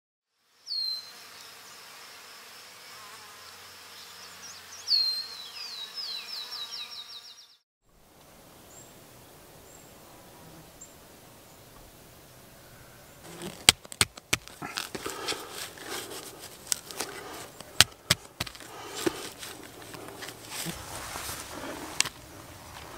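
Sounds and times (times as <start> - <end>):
high insect-like buzz: 0.3 - 7.5
small high bird chirps: 0.6 - 1.2, 4.0 - 7.6
clicks and knocks handling in grass: 13.2 - 22.9.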